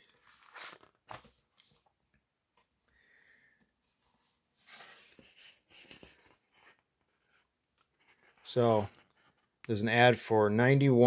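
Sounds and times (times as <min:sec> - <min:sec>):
magazine pages rustling: 0:00.0 - 0:01.9, 0:04.1 - 0:09.3.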